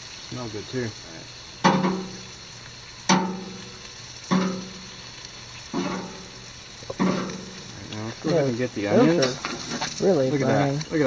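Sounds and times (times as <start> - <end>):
chicken sizzling on grill: 0.0 - 11.0
metal tongs clanking on grill rack: 1.6 - 2.3, 3.1 - 5.0, 5.7 - 8.4, 9.0 - 10.0.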